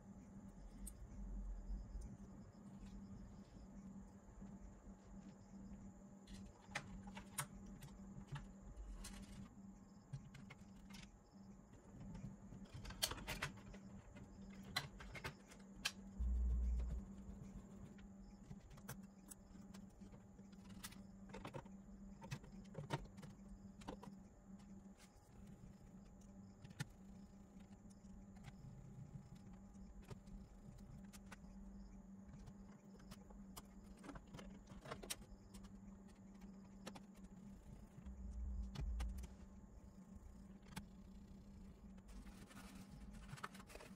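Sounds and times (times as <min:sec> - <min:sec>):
steady low hum: 0:00.0 - 0:43.9
short low thump: 0:16.2 - 0:17.0.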